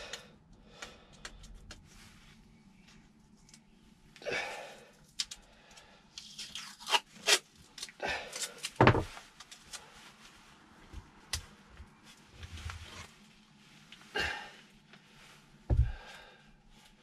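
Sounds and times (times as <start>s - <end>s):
masking tape ripping: 6.2s - 8.8s.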